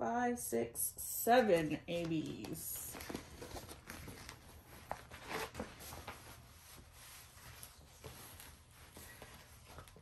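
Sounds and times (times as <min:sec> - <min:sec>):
plastic film crinkling: 0:02.2 - 0:10.0.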